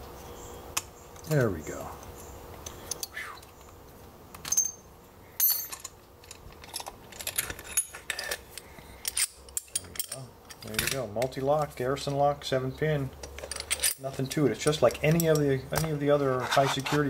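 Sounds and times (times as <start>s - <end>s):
metal clicks and clinks: 5.4s - 11.3s, 13.2s - 15.9s.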